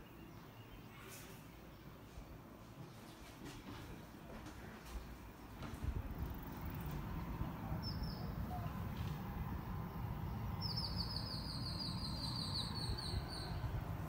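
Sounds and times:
bird singing: 0:00.0 - 0:01.1, 0:07.8 - 0:08.8, 0:10.4 - 0:13.8
low outdoor rumble: 0:00.9 - 0:14.0.

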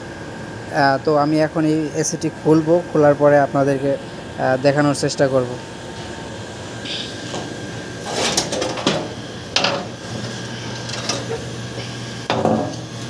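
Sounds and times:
steady low hum: 0:00.0 - 0:13.0
metal panels knocking and scraping: 0:08.1 - 0:09.9, 0:12.3 - 0:12.8.

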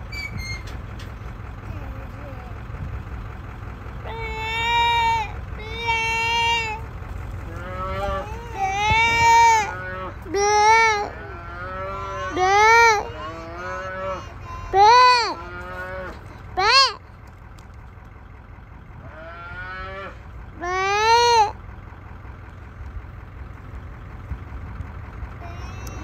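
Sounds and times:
calf bawling: 0:07.4 - 0:17.0.

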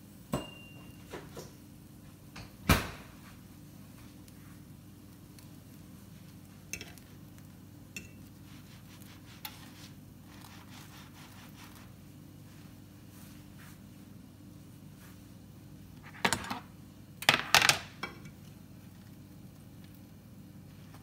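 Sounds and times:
sandwiches sizzling in a frying pan: 0:03.5 - 0:13.5
light clicks and taps in pan: 0:05.1 - 0:08.4.

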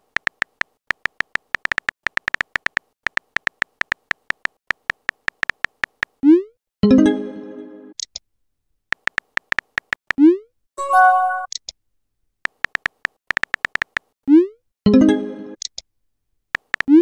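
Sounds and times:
rapid keyboard tap clicks: 0:00.0 - 0:06.2, 0:08.9 - 0:10.2, 0:12.4 - 0:14.1, 0:16.6 - 0:17.0
electronic chime: 0:10.8 - 0:11.5.

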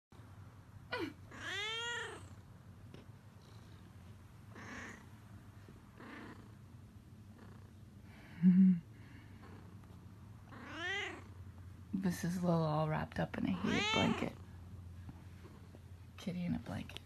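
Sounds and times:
cat meowing: 0:01.3 - 0:02.3, 0:10.5 - 0:11.3, 0:13.6 - 0:14.4.

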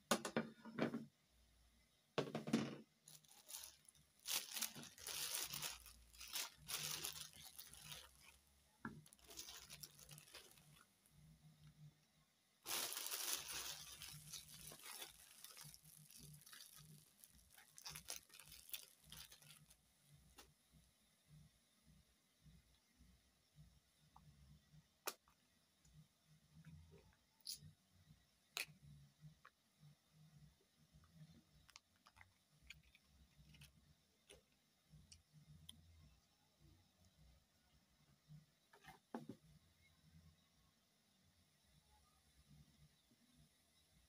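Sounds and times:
plastic bag crinkling: 0:03.0 - 0:11.0, 0:12.6 - 0:19.8.

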